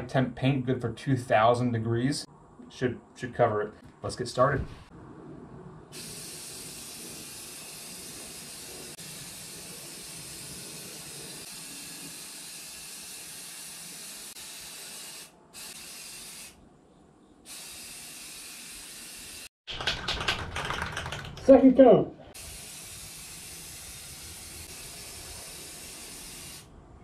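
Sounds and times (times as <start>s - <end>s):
aerosol spray can hissing: 6.0s - 16.6s, 17.5s - 19.5s, 22.4s - 26.7s.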